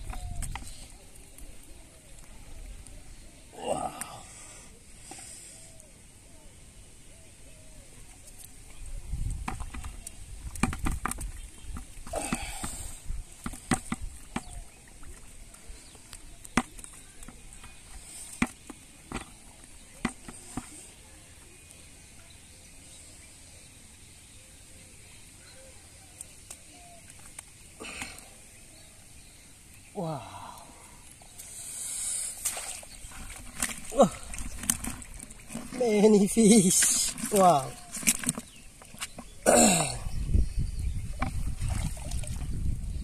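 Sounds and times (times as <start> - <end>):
bamboo trap knocking and clattering: 9.4 - 12.6.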